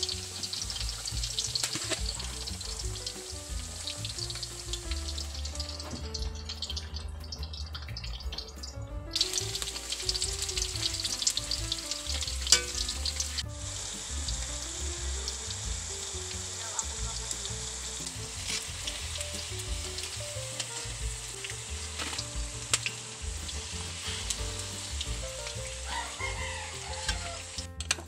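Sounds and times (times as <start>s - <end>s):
bananas sizzling in hot oil: 0.0s - 28.0s
faint background music: 0.0s - 28.0s
sharp crack of oil: 0.1s - 4.8s.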